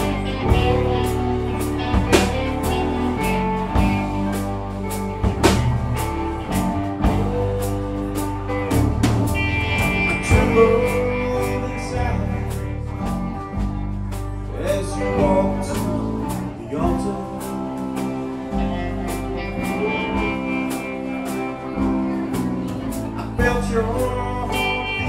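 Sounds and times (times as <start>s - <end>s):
drum kit cymbal beat: 0.0s - 25.0s
live rock band playing: 0.0s - 25.0s.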